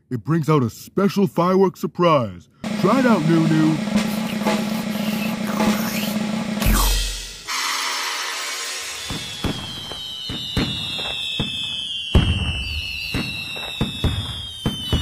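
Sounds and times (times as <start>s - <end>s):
firework whistle falling in pitch: 5.0s - 15.0s
fireworks bangs with crackle: 8.8s - 15.0s.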